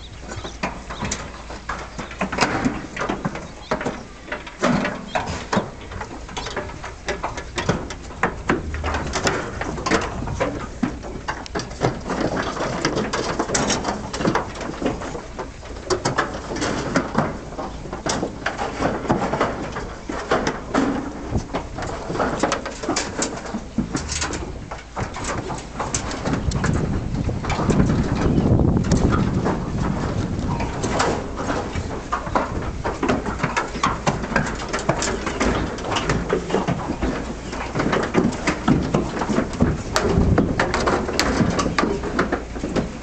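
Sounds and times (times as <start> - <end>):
hooves knocking in trailer: 0.0 - 43.0
steady low rumble: 8.1 - 10.5.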